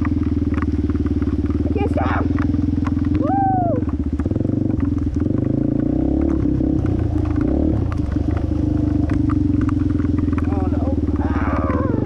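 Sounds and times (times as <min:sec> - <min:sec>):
motorcycle engine revving: 0:00.0 - 0:12.0
knocks and clatter: 0:03.8 - 0:12.0.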